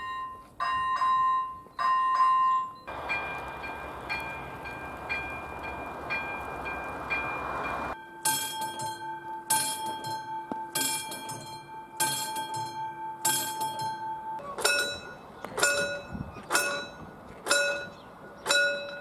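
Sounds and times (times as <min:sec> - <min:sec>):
level crossing warning bell: 0:00.0 - 0:19.0
passing train rumble: 0:02.9 - 0:08.0.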